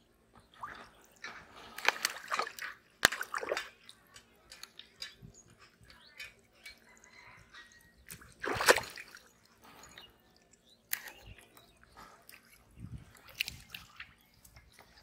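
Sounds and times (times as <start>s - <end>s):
water splashing and dripping: 0.3s - 15.0s.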